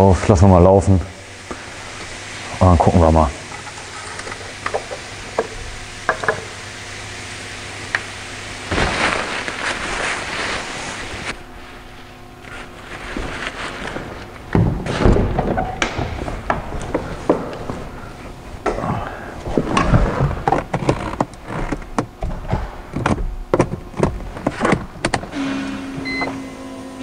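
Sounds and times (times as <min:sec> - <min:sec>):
rustling clattering noise: 0:08.6 - 0:17.9.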